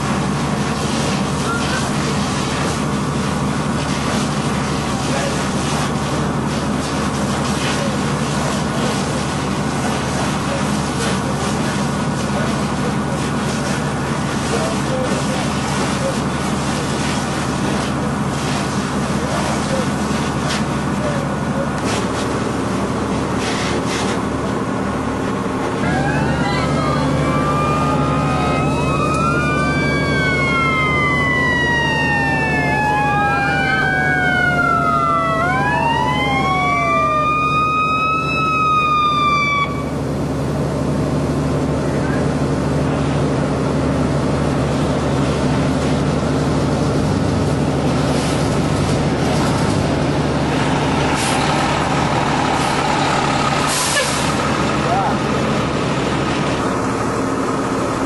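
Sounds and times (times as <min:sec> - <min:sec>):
heavy engine running: 0:00.0 - 0:58.0
emergency sirens wailing: 0:24.2 - 0:58.0.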